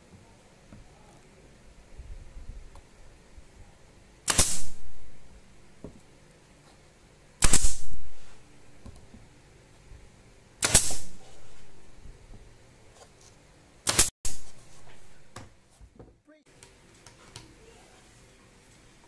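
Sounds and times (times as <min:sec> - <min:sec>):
nail gun firing into wood: 0:04.2 - 0:05.0, 0:07.4 - 0:08.2, 0:10.6 - 0:11.3, 0:13.8 - 0:14.5.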